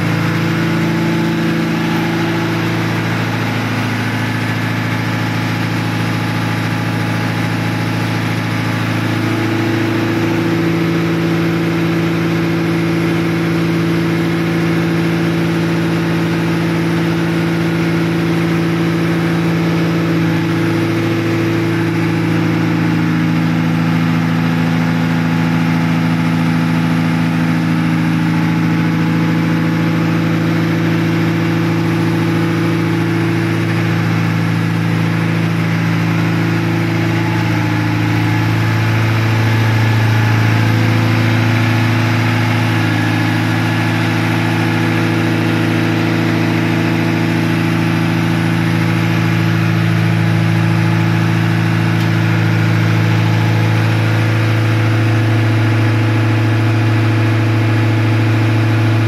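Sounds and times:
diesel machinery droning: 0.0 - 59.0.

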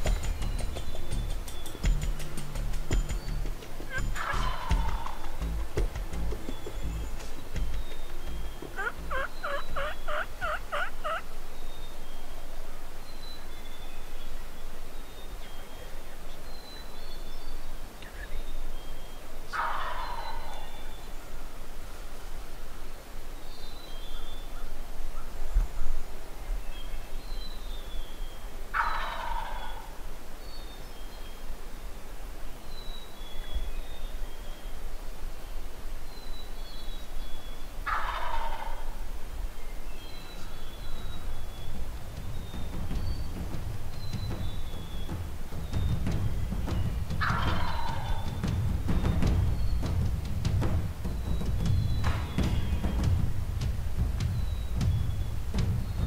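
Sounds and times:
low steady rumble: 0.0 - 11.5
small birds singing: 0.0 - 56.0
turkey gobbling: 3.1 - 11.4, 19.5 - 20.9, 28.7 - 30.0, 37.8 - 39.2, 40.3 - 50.6, 51.4 - 53.2.

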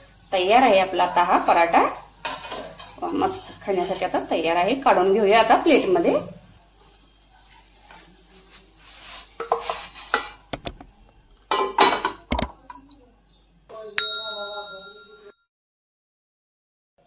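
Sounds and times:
ringing ding: 14.0 - 15.4.

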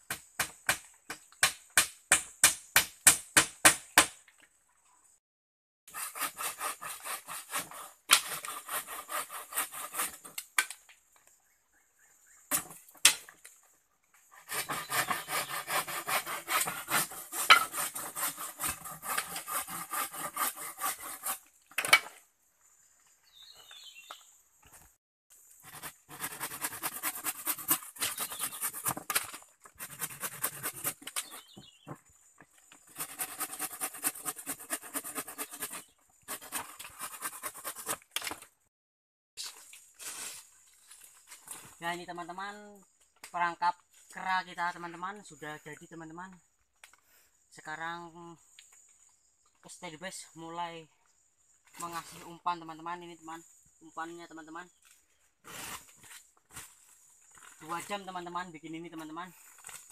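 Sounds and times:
hand saw cutting wood: 5.9 - 10.4, 14.2 - 21.5, 25.6 - 31.8, 32.8 - 38.4.

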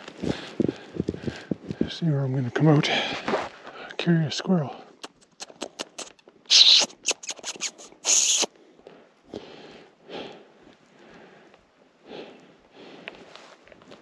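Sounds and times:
soft rustles: 0.0 - 3.8, 12.4 - 14.0
squirrel chattering: 5.0 - 8.5.

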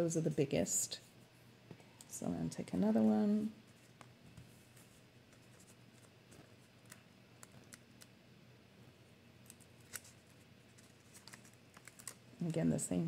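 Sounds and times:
fingers rustling paper: 9.4 - 12.6.

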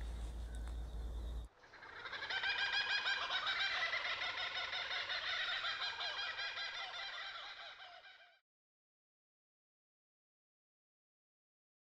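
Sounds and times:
poultry clucking chorus: 1.7 - 8.3.

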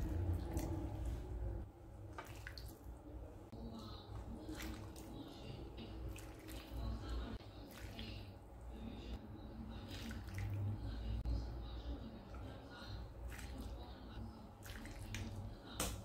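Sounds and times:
liquid splashing and dripping: 2.1 - 3.0.

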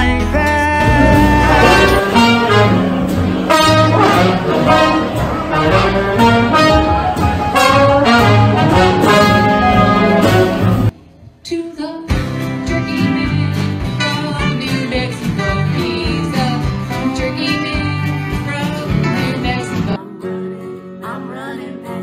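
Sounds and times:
electric keyboard: 0.0 - 10.9
upright bass: 0.0 - 10.9
guitar: 0.0 - 22.0
saxophone: 0.8 - 10.9
trombone: 0.8 - 10.9.

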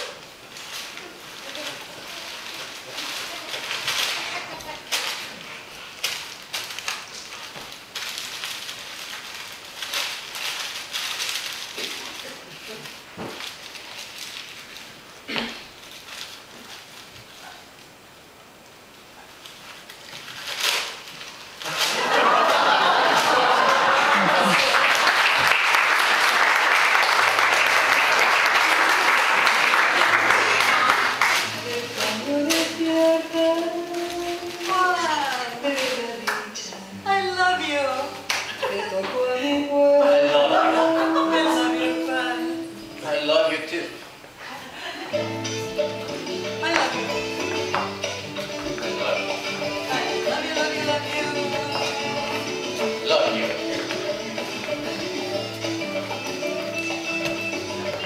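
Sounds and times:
paper crackling and rustling: 0.4 - 17.6, 19.3 - 23.0, 30.7 - 36.6
audience applauding: 22.0 - 31.5.

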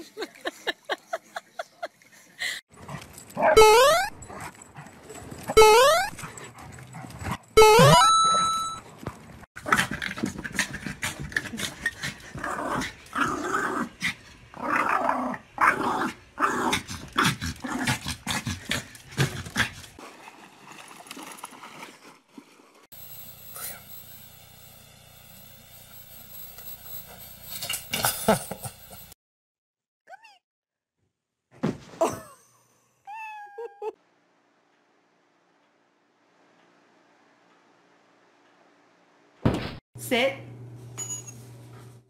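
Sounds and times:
small dog growling and yapping: 9.6 - 19.8.

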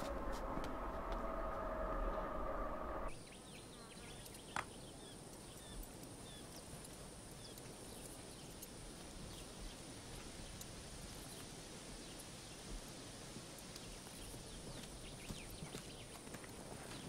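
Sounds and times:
insect drone: 0.0 - 3.6
bird chirps: 0.0 - 6.6.

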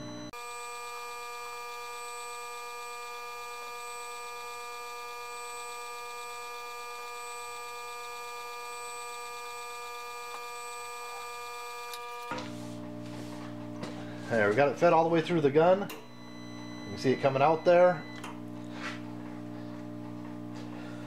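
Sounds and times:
wire-feed motor whining: 0.0 - 21.0.

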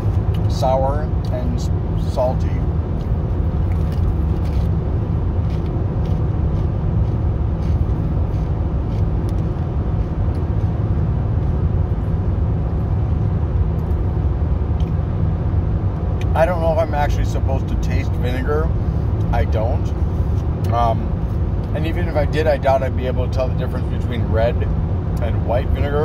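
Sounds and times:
car cabin road rumble: 0.0 - 26.0
chip crunching: 3.0 - 4.8, 5.4 - 10.8.

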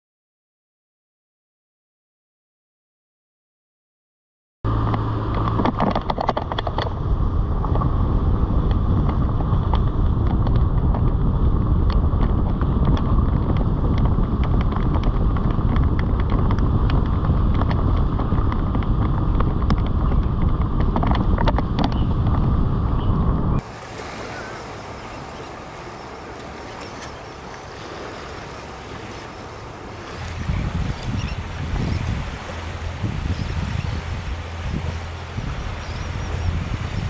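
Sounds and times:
vehicle road noise: 4.7 - 37.0
wind rumble on microphone: 4.7 - 37.0
clicks and crackles: 4.9 - 7.0.

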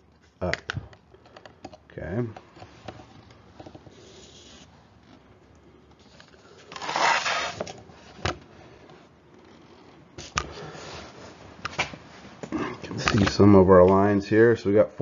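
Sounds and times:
rustling and scraping on table: 2.3 - 5.3, 5.9 - 13.3.

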